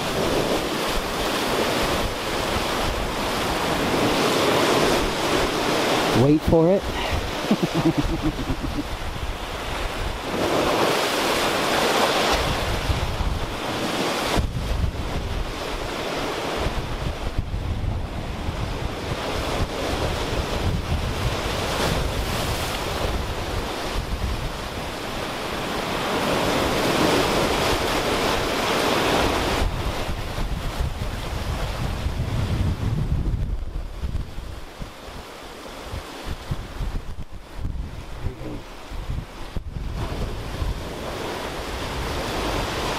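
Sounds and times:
ocean surf breaking on rocks: 0.0 - 42.9
wind buffeting microphone: 12.1 - 42.9.

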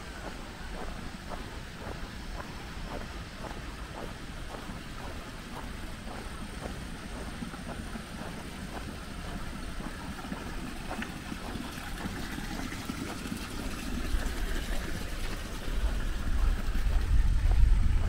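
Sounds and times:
wind buffeting microphone: 13.6 - 18.0.

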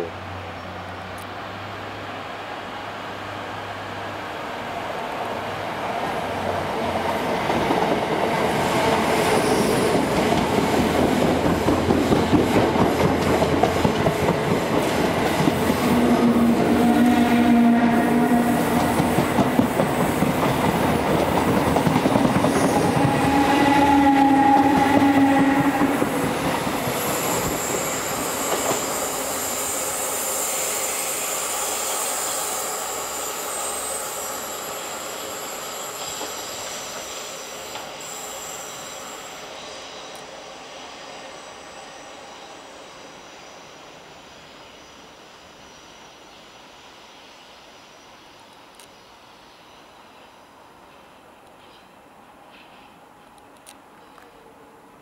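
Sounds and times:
train wheels rumbling and clattering: 6.4 - 17.2, 17.9 - 32.3
high wheel squeal: 26.8 - 40.1.

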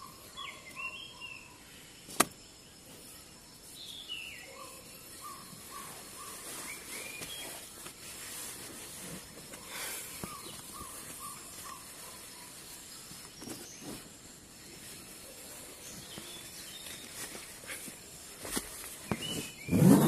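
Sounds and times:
birds chirping: 0.0 - 20.0.

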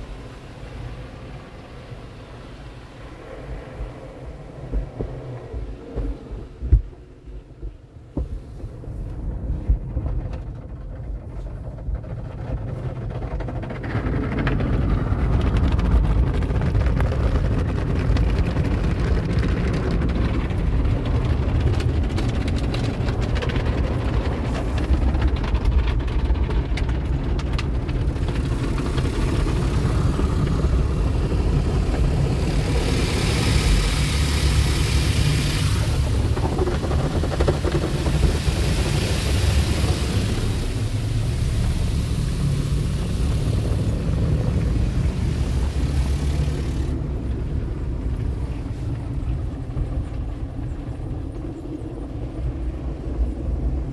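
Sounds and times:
water spraying onto car: 27.0 - 47.2
car wash brushes scrubbing: 28.0 - 47.0.

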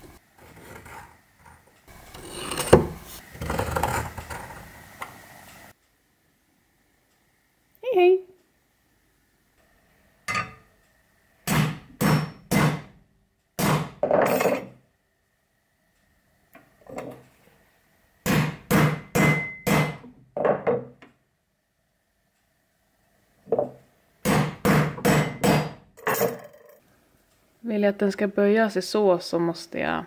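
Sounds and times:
hammer striking punch on brass: 11.5 - 12.9, 13.6 - 14.0, 18.3 - 20.0, 24.3 - 25.8.

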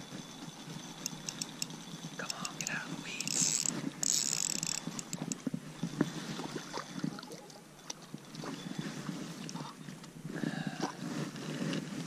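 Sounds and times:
fishing reel cranking: 0.2 - 5.4.

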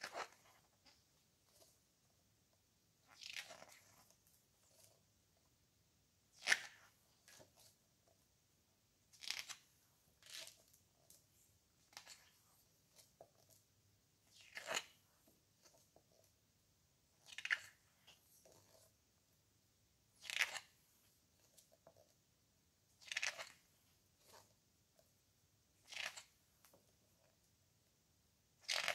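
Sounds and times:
book pages turning: 0.0 - 1.8, 3.2 - 5.0, 9.2 - 11.2, 11.8 - 13.6, 14.4 - 15.0, 17.2 - 18.9, 23.0 - 24.5, 25.9 - 26.8, 28.6 - 28.9.

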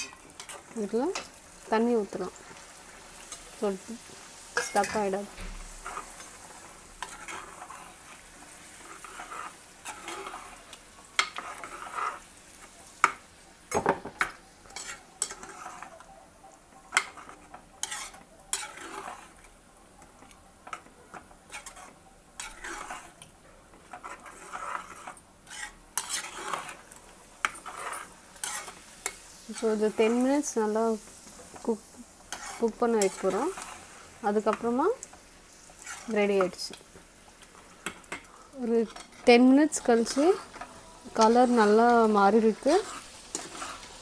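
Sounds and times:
metal ladle stirring thick gravy: 5.8 - 13.8, 14.6 - 16.0, 16.8 - 29.3, 32.2 - 36.5, 42.8 - 43.9.

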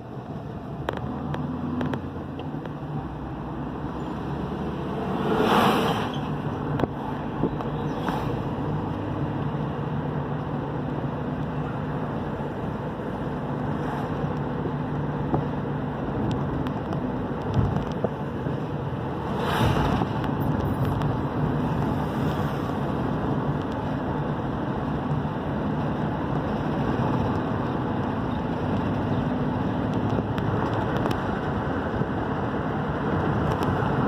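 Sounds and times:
road noise rushing: 0.0 - 34.0
vehicle engine hum: 0.0 - 34.0.

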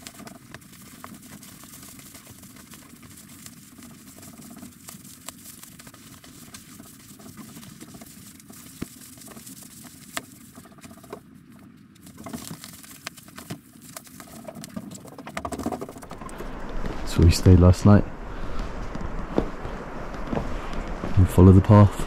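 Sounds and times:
nylon fabric rustling: 18.1 - 21.3.

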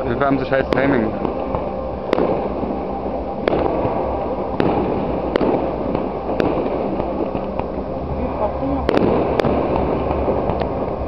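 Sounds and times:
steady noisy background: 0.0 - 11.0
firework shells bursting: 3.4 - 7.8, 8.9 - 11.0.

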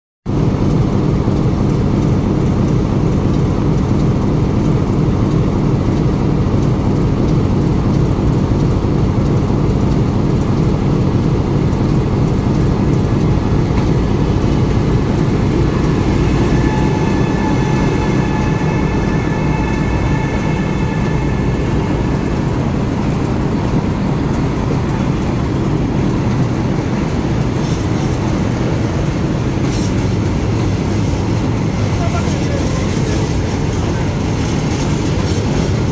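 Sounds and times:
locomotive low hum: 0.3 - 35.9
faint high whine: 13.5 - 24.2.

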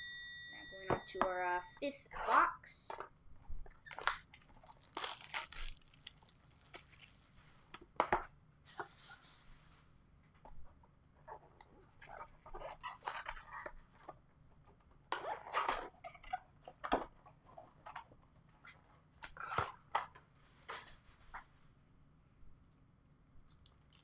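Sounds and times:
packaging crinkling and tearing: 3.7 - 7.5, 23.5 - 24.0.

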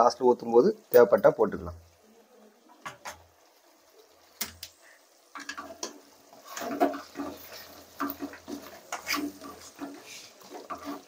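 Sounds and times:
spatula stirring thick curry: 5.3 - 11.0
spatula scraping metal pan: 5.4 - 11.0.

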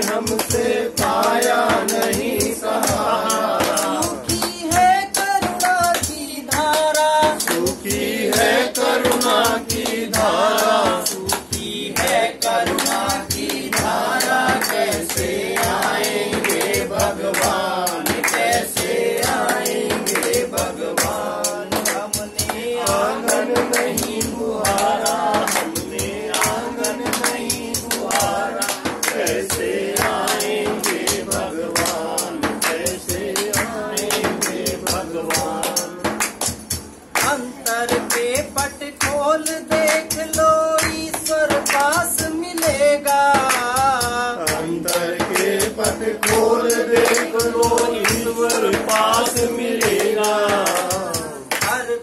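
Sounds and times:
group singing devotional song: 0.0 - 52.0
hand clapping: 0.0 - 52.0.

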